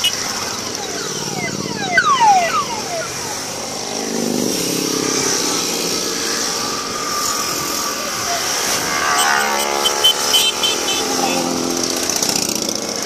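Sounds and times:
motorcycles riding past: 0.0s - 13.0s.

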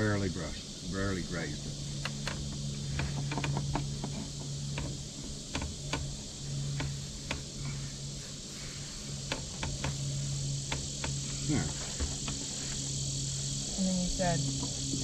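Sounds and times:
insect drone: 0.0s - 15.0s
low hum: 0.0s - 15.0s
brush tapping on deck boards: 2.0s - 7.5s, 9.1s - 12.8s.

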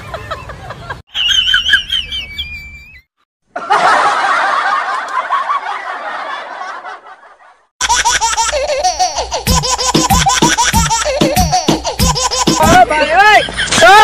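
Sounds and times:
people laughing: 0.0s - 2.5s, 3.5s - 14.0s
upbeat music with steady beat: 9.4s - 12.9s.

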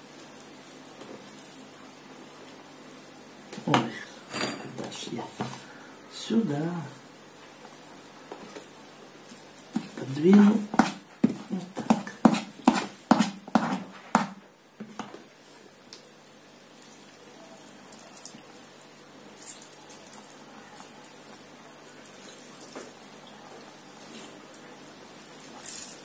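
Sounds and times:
spoon scraping plastic colander: 9.8s - 14.0s
juice dripping and trickling: 15.2s - 26.0s.

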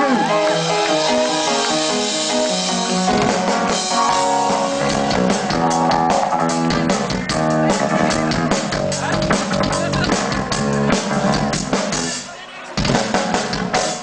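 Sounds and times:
rock band playing: 0.0s - 14.0s
drum kit hits: 2.2s - 12.1s.

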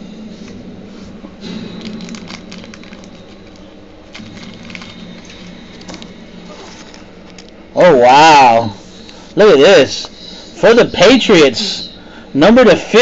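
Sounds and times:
steady low hum: 0.0s - 13.0s
cards clicking and rustling: 1.8s - 7.6s.

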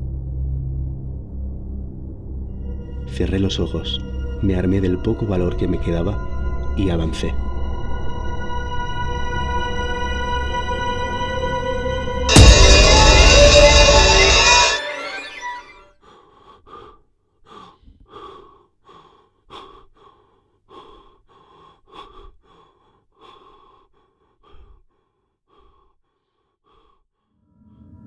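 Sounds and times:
man panting hard: 16.0s - 27.4s.

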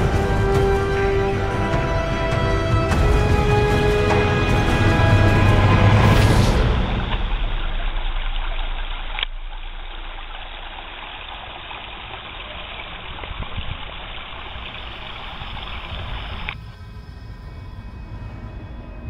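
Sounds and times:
stream trickling over rocks: 6.5s - 16.6s.

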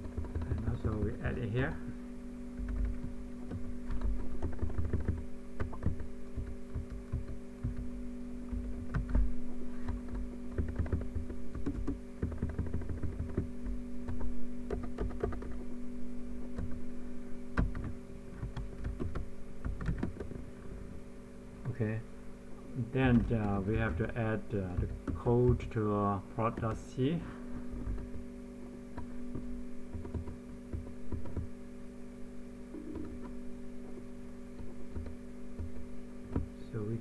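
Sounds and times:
computer keyboard typing: 0.0s - 1.4s, 2.6s - 7.9s, 8.5s - 15.6s, 16.5s - 16.8s, 17.6s - 20.4s, 23.0s - 25.7s, 26.4s - 26.9s, 28.9s - 31.5s, 32.7s - 33.4s, 34.6s - 35.7s
steady electrical hum: 0.0s - 37.0s.

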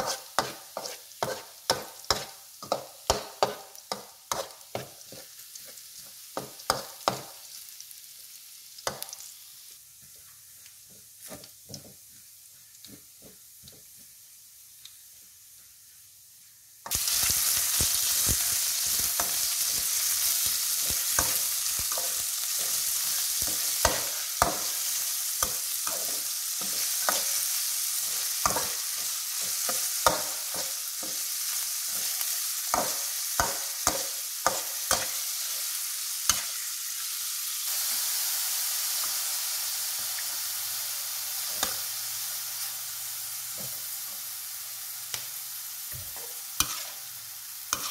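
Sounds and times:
metal spatula scraping wok: 0.0s - 2.8s, 3.4s - 5.3s, 46.1s - 47.9s
meat sizzling: 0.0s - 47.9s.

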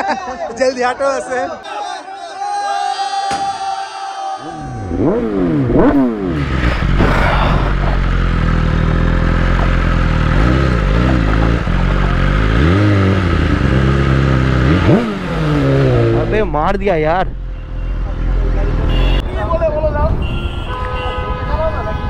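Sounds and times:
motorcycle engine revving: 4.5s - 19.2s.

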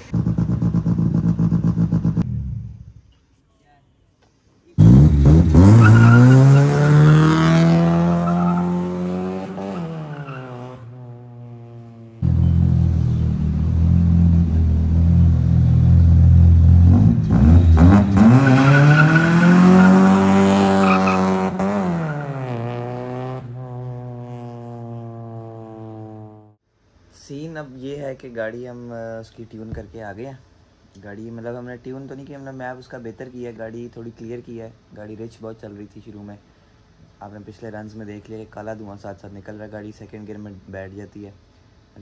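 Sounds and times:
car engine revving hard: 4.8s - 11.0s, 16.6s - 26.6s.

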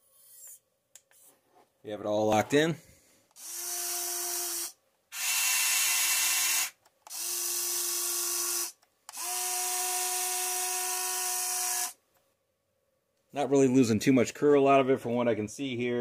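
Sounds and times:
toy excavator motor whine: 3.4s - 12.0s.

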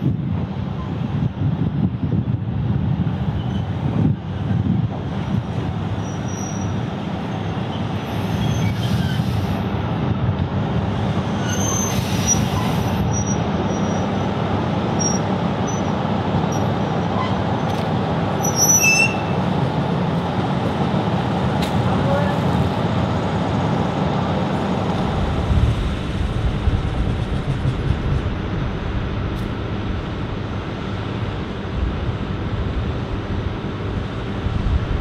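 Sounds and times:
diesel engine rumbling: 0.0s - 35.0s
wheel and brake squeals: 3.4s - 3.8s, 6.0s - 9.5s, 11.3s - 14.2s, 15.0s - 17.5s, 18.4s - 19.4s.

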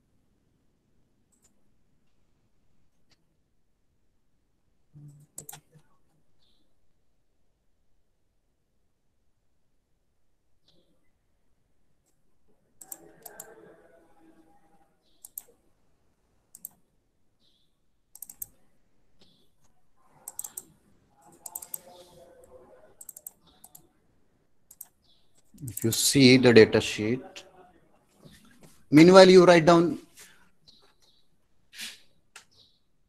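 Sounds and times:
mouse and keyboard clicks: 5.2s - 5.9s, 12.8s - 13.6s, 15.2s - 15.6s, 16.5s - 16.8s, 18.1s - 18.6s, 19.2s - 22.2s, 23.0s - 23.9s, 24.7s - 26.0s.

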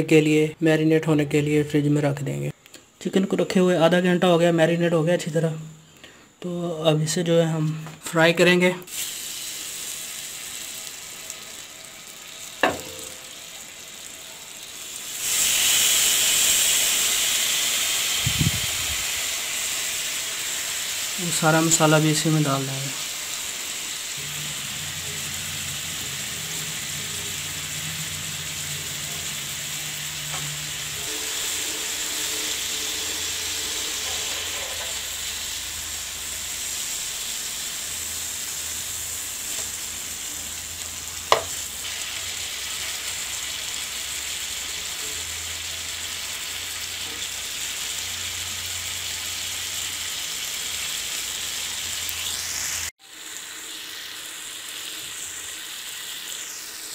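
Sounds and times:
chicken sizzling in oil: 8.9s - 56.9s.

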